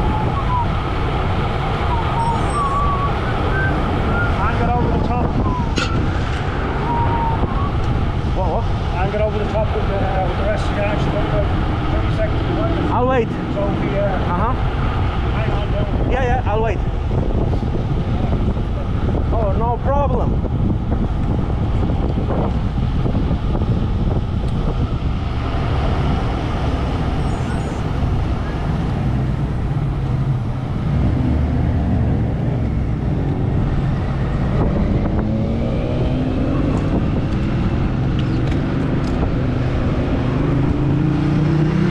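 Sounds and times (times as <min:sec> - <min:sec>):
vehicle engine rising in pitch: 0:00.0 - 0:09.1, 0:23.4 - 0:41.9
road noise: 0:00.0 - 0:41.9
wind on camera microphone: 0:00.0 - 0:41.9.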